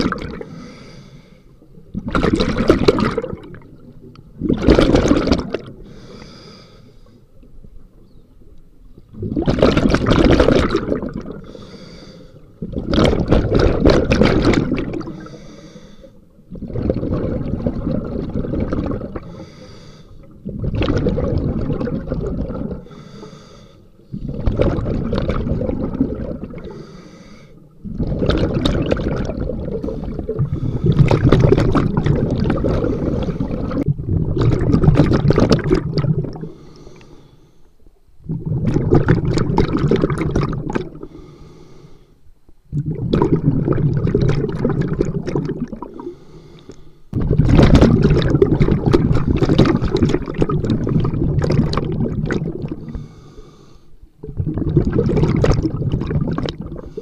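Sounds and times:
bubbling exhales: 0.0 - 1.3, 1.9 - 3.8, 4.4 - 7.1, 9.1 - 37.2, 38.2 - 41.6, 42.7 - 57.0
diver breathing through regulator: 0.4 - 1.6, 5.8 - 7.2, 11.4 - 12.6, 15.0 - 16.3, 19.2 - 20.4, 22.6 - 24.4, 26.6 - 27.7, 29.8 - 31.4, 32.5 - 33.9, 36.4 - 37.8, 41.0 - 42.2, 45.9 - 47.2, 52.7 - 54.0, 56.7 - 57.0.

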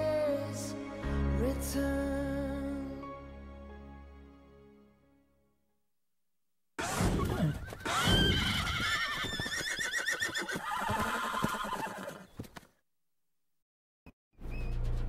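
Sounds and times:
horse whinnying: 6.8 - 12.4.

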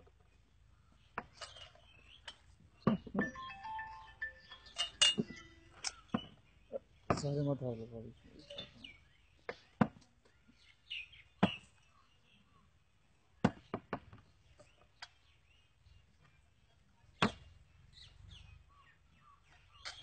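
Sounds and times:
faint high chirps: 3.1 - 6.8.

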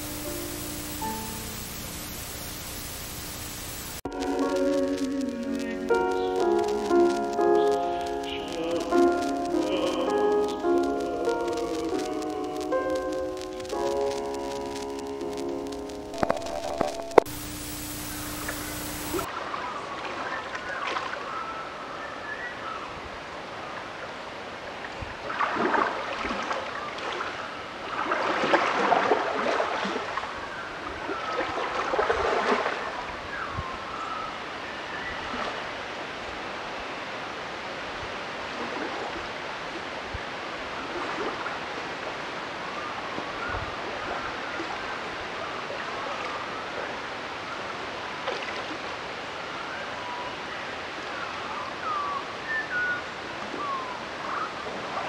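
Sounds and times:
steady rushing noise: 0.0 - 19.3.

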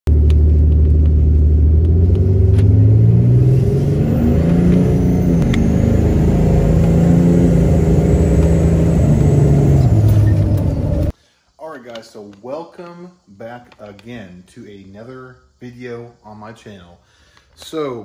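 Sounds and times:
diesel engine accelerating: 0.1 - 11.1.

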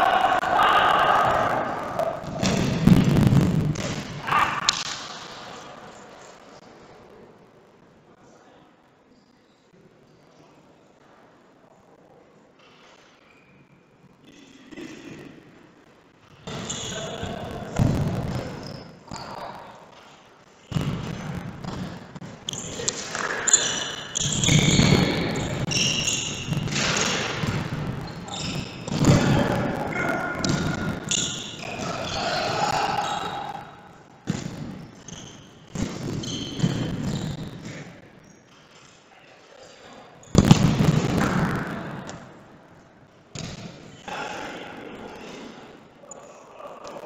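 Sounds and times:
ball kicked and bouncing indoors: 2.2 - 5.4, 17.7 - 32.0, 34.2 - 37.9, 40.2 - 42.4, 43.3 - 44.0.

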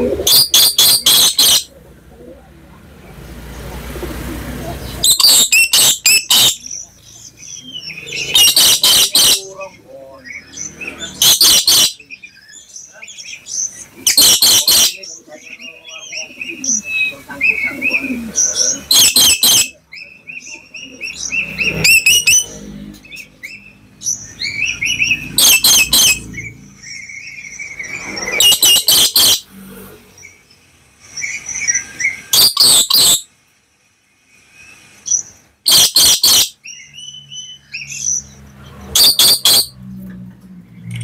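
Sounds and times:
parrot harsh screeches: 8.2 - 9.4, 11.1 - 12.0, 25.4 - 26.2, 28.3 - 29.5, 32.3 - 33.3, 35.7 - 36.6, 38.9 - 39.8.

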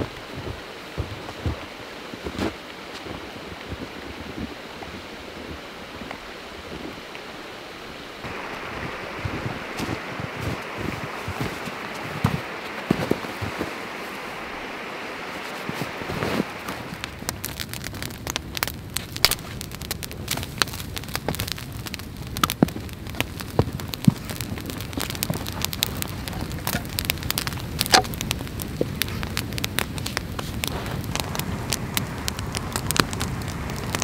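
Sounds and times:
steady rushing noise: 0.0 - 34.0
campfire crackling and popping: 8.0 - 34.0.

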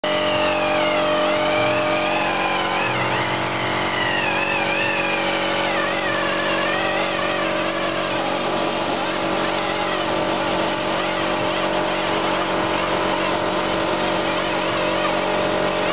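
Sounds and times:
air polisher whine: 0.0 - 15.9
low hum: 0.1 - 13.1.

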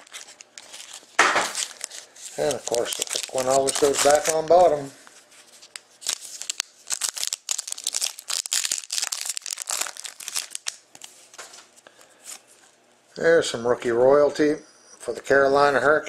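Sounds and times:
foil wrapper tearing and crinkling: 0.0 - 4.9, 5.6 - 11.4.

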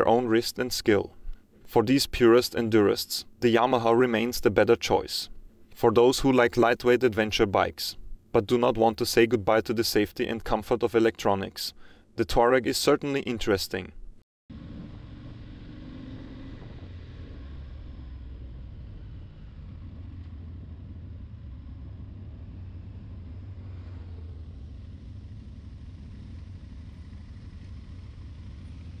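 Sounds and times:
motorcycle engine rumbling: 14.5 - 29.0
road and wind noise: 14.5 - 29.0.

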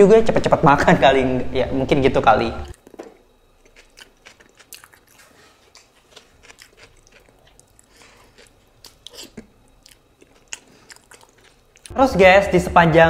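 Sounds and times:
wet chewing: 2.7 - 11.9
squishing sauce-covered fingers: 3.6 - 11.9.

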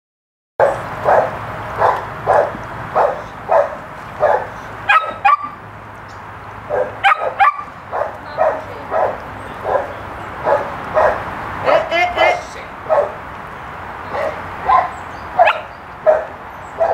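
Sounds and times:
dog barking: 0.6 - 5.6, 6.7 - 11.2, 12.8 - 13.2, 14.1 - 16.9
dog yelping: 0.6 - 5.6, 6.7 - 11.2, 12.9 - 13.2, 14.1 - 16.9.

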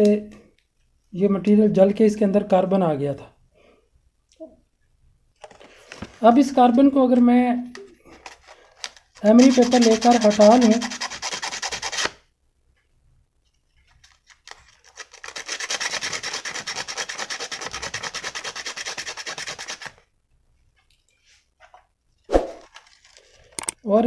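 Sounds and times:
emery paper sanding metal: 9.2 - 12.2, 14.8 - 20.0.

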